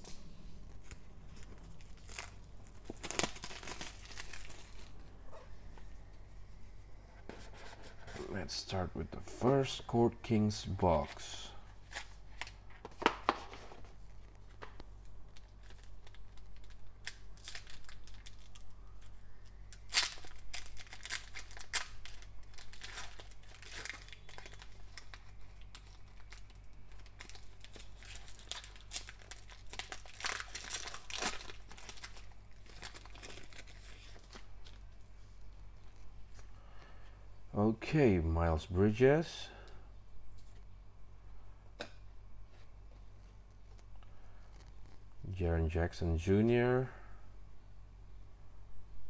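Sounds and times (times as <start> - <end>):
foil wrapper tearing and crinkling: 0.8 - 5.0, 15.3 - 34.9.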